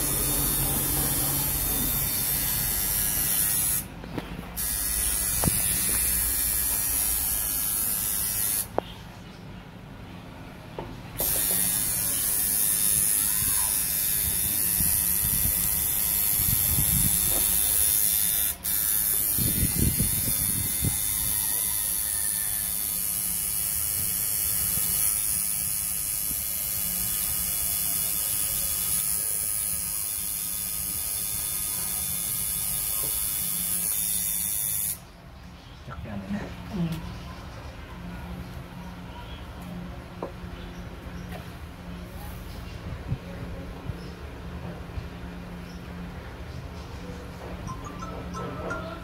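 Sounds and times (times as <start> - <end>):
tattoo machine buzzing: 0.0 - 3.9, 4.5 - 8.8, 11.2 - 35.1.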